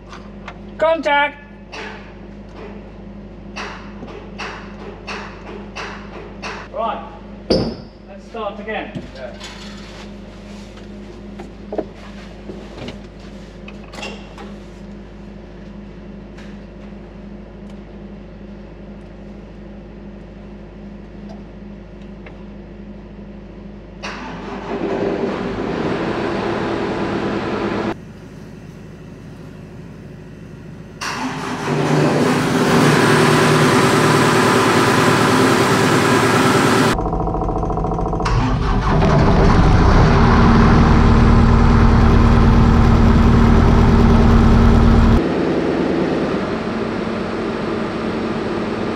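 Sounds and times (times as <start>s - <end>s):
diesel engine starting and running: 24.0s - 48.9s
low hum: 33.9s - 48.9s.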